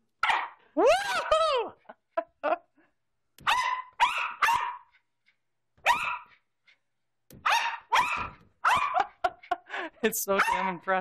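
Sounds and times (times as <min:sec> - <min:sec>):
small dog barking: 0:00.2 - 0:00.6, 0:03.4 - 0:04.9, 0:05.8 - 0:06.4, 0:07.4 - 0:09.2, 0:10.4 - 0:10.7.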